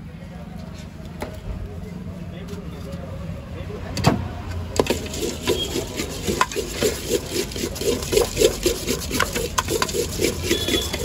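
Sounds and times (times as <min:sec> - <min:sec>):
spoon scraping in steel bowl: 0:04.8 - 0:11.0.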